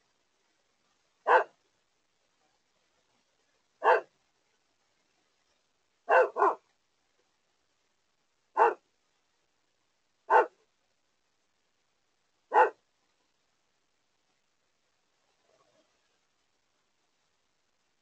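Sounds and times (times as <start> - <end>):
dog barking: 1.2 - 1.6, 3.8 - 4.1, 6.1 - 6.6, 8.6 - 8.8, 10.3 - 10.6, 12.5 - 12.8.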